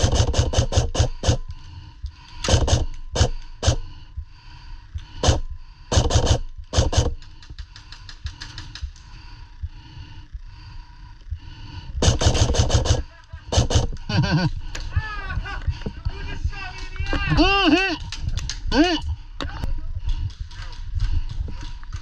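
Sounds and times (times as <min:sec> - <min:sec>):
airsoft guns firing bursts: 0:00.0 - 0:01.5, 0:02.4 - 0:03.9, 0:05.2 - 0:08.8, 0:12.0 - 0:14.4.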